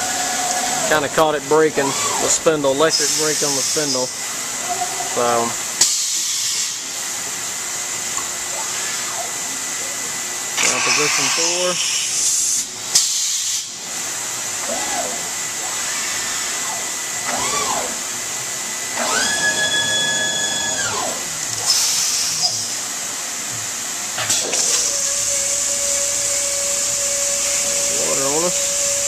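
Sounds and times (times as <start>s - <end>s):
stone cutting machine hissing: 0.0s - 4.2s, 10.6s - 13.8s, 24.4s - 29.0s
machine whine: 0.0s - 7.0s, 14.5s - 23.6s, 24.2s - 29.0s.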